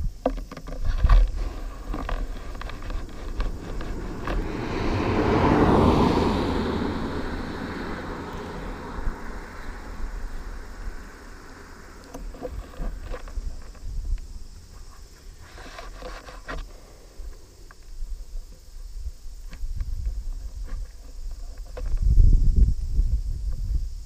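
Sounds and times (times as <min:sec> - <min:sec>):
low steady rumble: 0:00.9 - 0:15.6
car driving past: 0:01.9 - 0:12.2.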